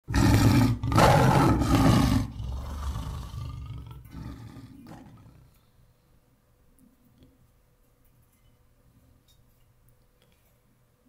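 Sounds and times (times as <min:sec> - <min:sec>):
tiger roar: 0:00.1 - 0:05.6.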